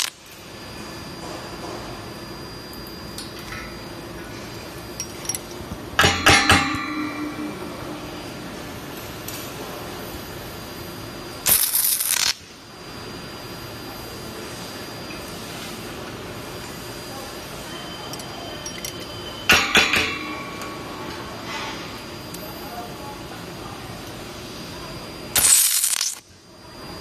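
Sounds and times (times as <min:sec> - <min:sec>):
welding arc hiss: 0:00.0 - 0:00.8, 0:06.0 - 0:17.7, 0:24.0 - 0:26.8
metallic clinks and knocks: 0:05.0 - 0:07.5, 0:18.1 - 0:21.2
low hum: 0:05.0 - 0:09.1.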